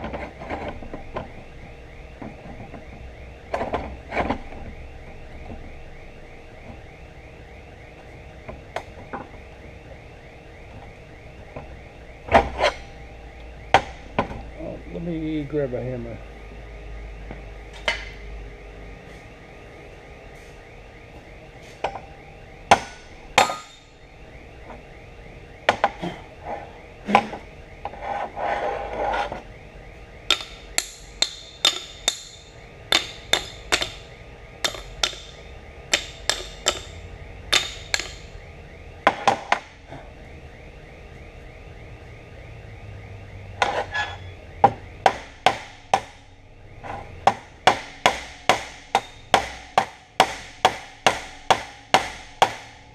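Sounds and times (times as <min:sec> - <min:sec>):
hammer striking steel: 0:22.7 - 0:23.9, 0:30.3 - 0:38.3, 0:45.0 - 0:46.2, 0:47.3 - 0:52.8.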